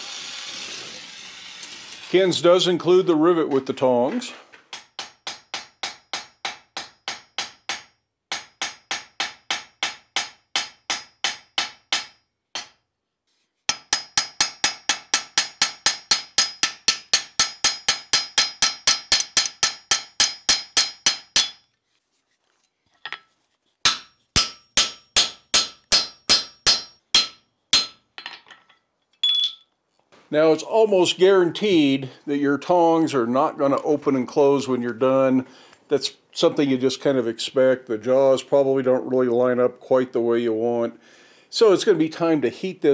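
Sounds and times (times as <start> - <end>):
hammer striking metal: 4.7 - 12.8, 13.7 - 21.7, 23.9 - 28.3.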